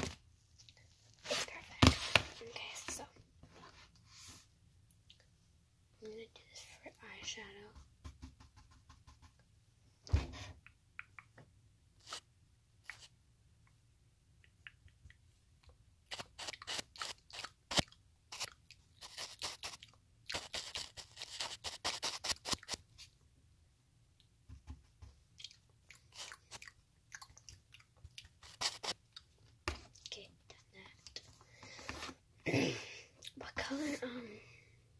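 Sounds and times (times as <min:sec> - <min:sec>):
brush rubbing on microphone: 0:18.3 - 0:22.8.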